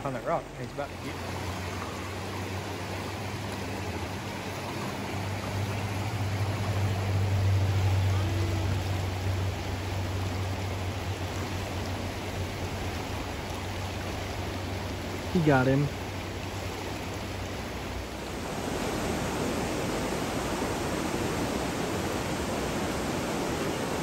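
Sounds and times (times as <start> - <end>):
stream rushing over rocks: 0.0 - 24.0.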